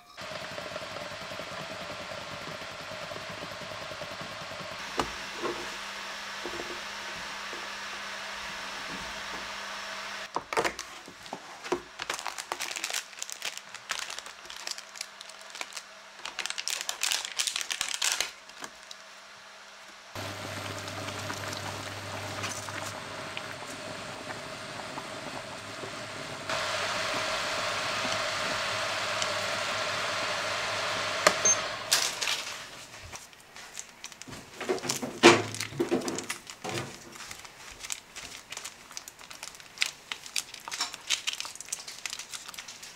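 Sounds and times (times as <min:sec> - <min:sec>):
water boiling: 0:00.2 - 0:10.3, 0:20.2 - 0:33.0
plastic packets crinkling: 0:10.3 - 0:19.1, 0:31.9 - 0:42.9
water simmering in a pot: 0:20.2 - 0:29.0
hob hum: 0:20.2 - 0:32.8.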